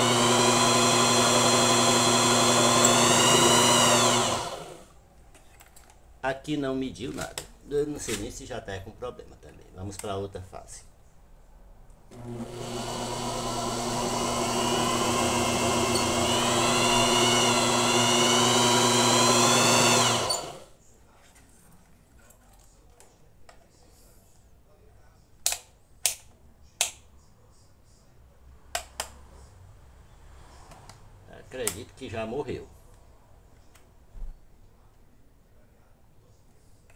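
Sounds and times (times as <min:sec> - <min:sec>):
electric motor whining: 0:00.0 - 0:04.8, 0:12.2 - 0:20.7.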